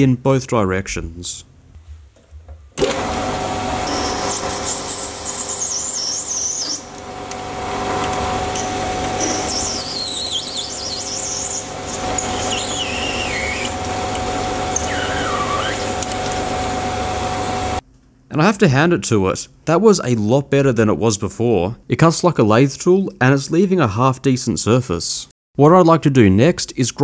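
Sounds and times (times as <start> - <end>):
lathe running: 2.8 - 17.8
high-pitched cutting squeals: 3.8 - 7.0, 8.4 - 13.9, 14.5 - 16.1.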